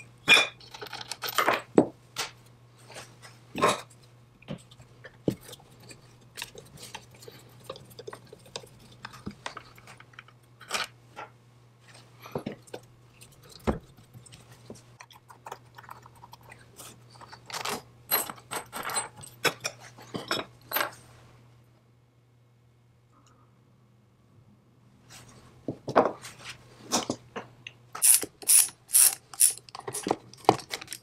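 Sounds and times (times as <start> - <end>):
screwdriver clicking and scraping metal: 28.0 - 31.0.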